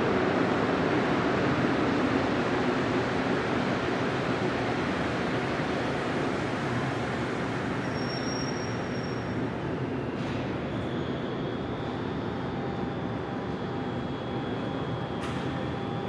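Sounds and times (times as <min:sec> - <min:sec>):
faint high whine: 0:06.4 - 0:16.0.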